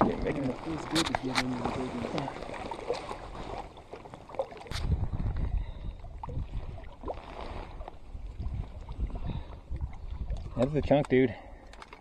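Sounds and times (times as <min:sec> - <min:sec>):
water lapping against rocks: 0:00.0 - 0:12.0
wind buffeting microphone: 0:04.7 - 0:11.0.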